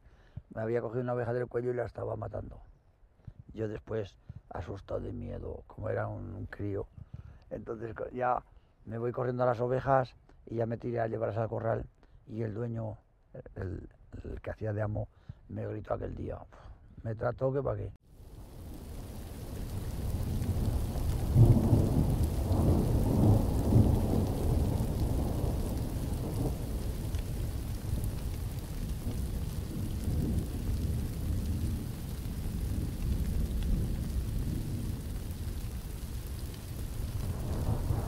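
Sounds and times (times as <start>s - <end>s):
rain falling: 18.1s - 38.0s
thunder rumbling: 18.2s - 38.0s.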